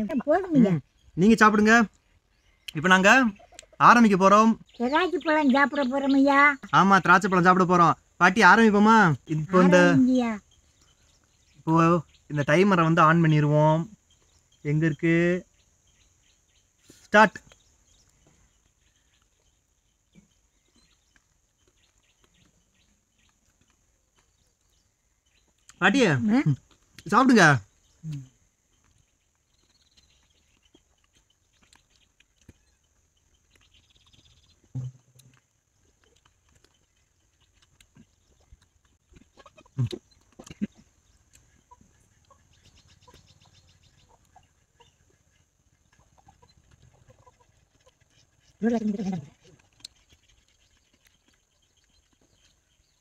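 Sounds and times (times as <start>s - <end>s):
faint bird calls: 13.4s - 53.0s.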